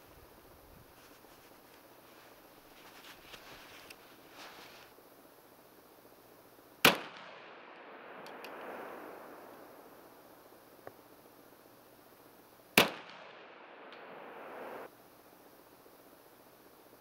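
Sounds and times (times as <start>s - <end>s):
pistol shot: 6.8s - 9.5s, 12.8s - 14.9s.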